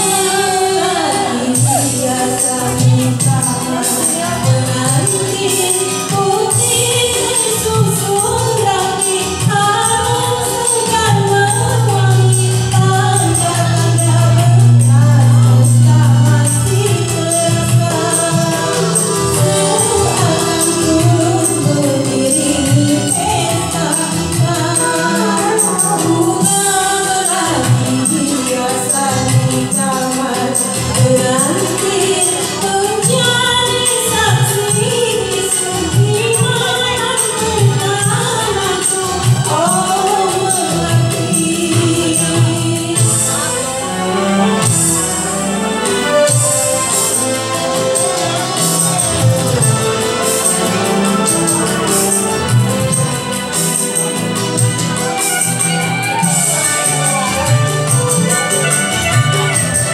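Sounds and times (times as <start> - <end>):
karaoke backing track: 0.0 - 59.9
woman singing into microphone: 0.0 - 59.9.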